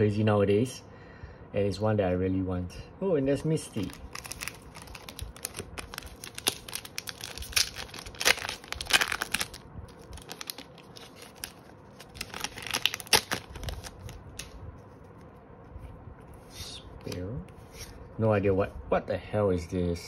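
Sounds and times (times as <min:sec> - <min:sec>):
foil wrapper crinkling and tearing: 0:03.8 - 0:14.6.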